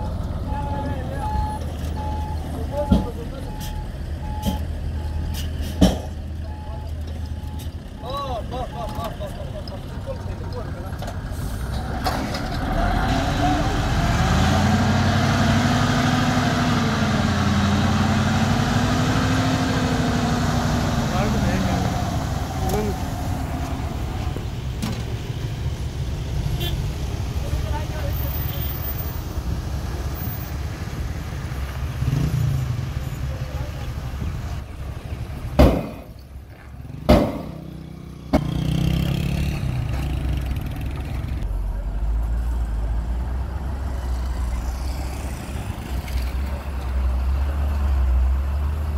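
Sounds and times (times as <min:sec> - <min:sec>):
loud metal bangs of truck bed: 0:35.5 - 0:36.2, 0:37.0 - 0:37.6.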